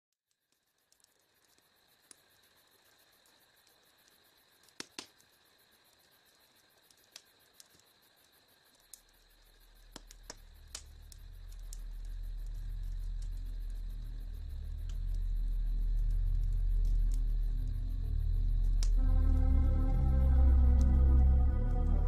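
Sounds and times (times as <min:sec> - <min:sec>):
insect trilling: 0:00.6 - 0:22.0
low rumble: 0:10.4 - 0:22.0.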